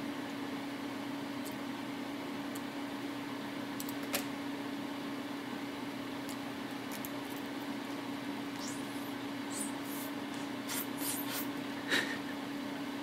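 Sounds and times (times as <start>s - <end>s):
low machine hum: 0.0s - 13.0s
hiss: 8.6s - 11.5s.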